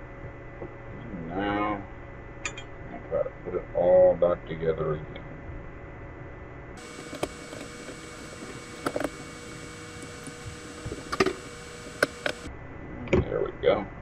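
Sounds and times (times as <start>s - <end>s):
steady low hiss: 6.8s - 12.5s.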